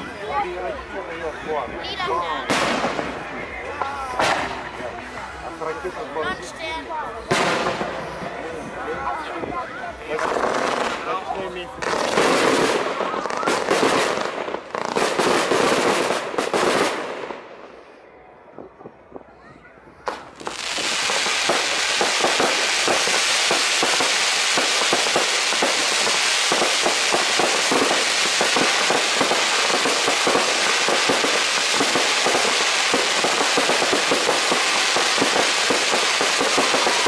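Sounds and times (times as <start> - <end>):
fireworks crackling: 0.0 - 18.0, 18.6 - 37.0.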